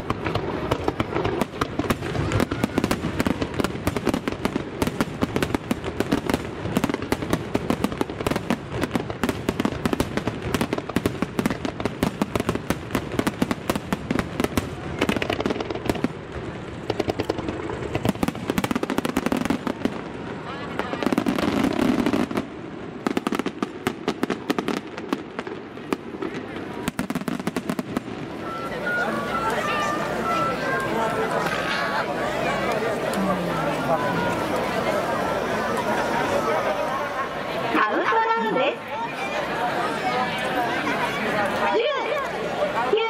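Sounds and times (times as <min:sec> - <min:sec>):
fireworks bangs and crackles: 0:00.0 - 0:43.0.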